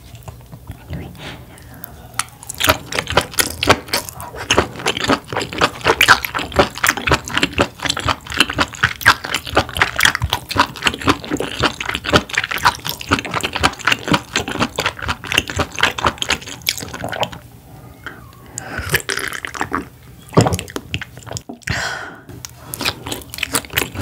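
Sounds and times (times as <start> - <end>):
chewing clicks and smacks: 2.2 - 17.4, 22.4 - 24.0.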